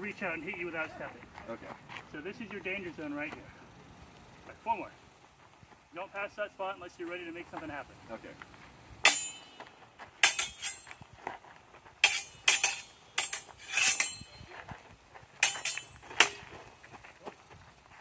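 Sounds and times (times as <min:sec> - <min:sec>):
swords clashing: 0:09.0 - 0:09.6, 0:10.2 - 0:10.9, 0:12.0 - 0:14.4, 0:15.4 - 0:16.6.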